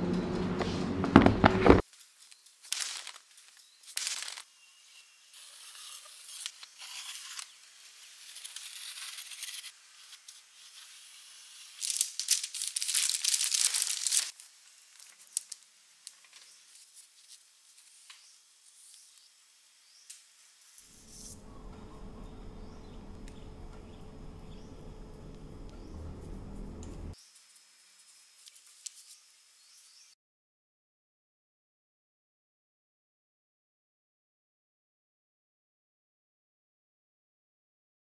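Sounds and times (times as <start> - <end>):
baking paper rustling: 1.5 - 4.5, 5.4 - 18.1, 20.9 - 27.2.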